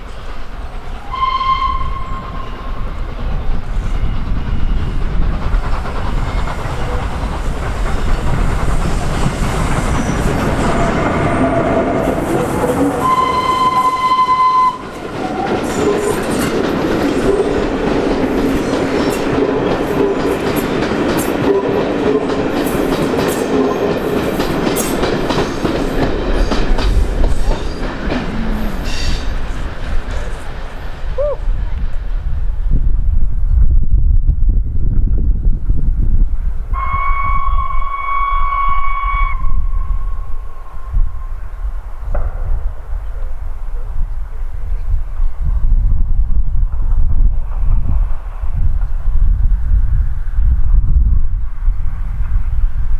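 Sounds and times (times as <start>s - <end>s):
train wheels going by: 0.0s - 33.1s
steam locomotive rumbling past: 0.0s - 52.9s
steam locomotive whistle: 1.0s - 2.9s, 12.8s - 16.2s, 36.7s - 40.8s.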